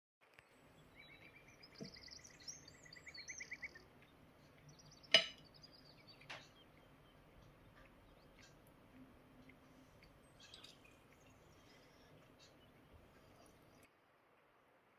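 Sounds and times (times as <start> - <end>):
metal fork clinking on glass plate: 5.1 - 5.4.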